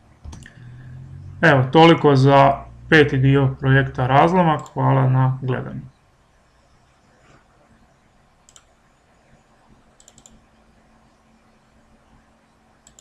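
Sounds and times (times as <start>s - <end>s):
low steady hum: 0.0s - 13.0s
computer mouse clicks: 0.2s - 0.6s, 8.4s - 8.8s, 10.0s - 10.5s, 12.8s - 13.0s.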